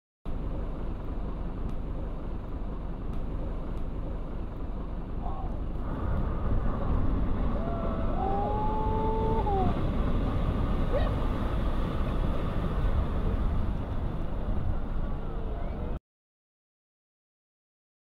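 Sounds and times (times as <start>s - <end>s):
deep rumble: 0.3s - 16.0s
wind and surf rushing: 5.8s - 15.2s
person whooping: 7.5s - 9.8s.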